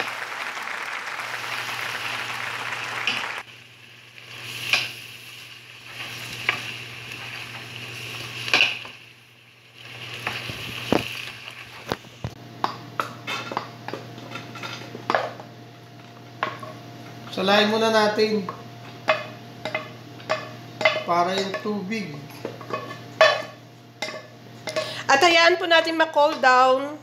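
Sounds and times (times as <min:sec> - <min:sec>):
vegetables sizzling in a pan: 0:01.2 - 0:12.4.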